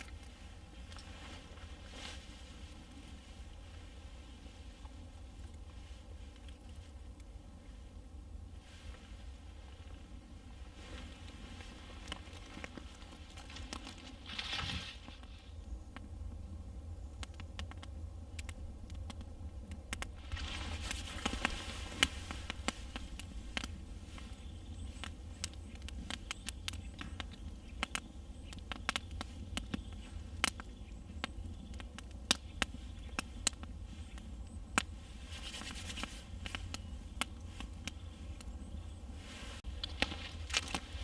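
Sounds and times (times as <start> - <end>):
campfire crackling and popping: 11.6 - 39.0, 39.6 - 41.0.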